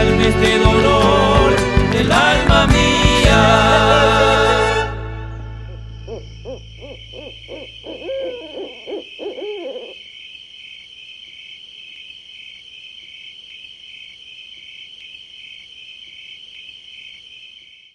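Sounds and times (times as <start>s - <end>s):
crickets chirping: 5.2s - 17.9s
short animal calls: 5.7s - 10.2s.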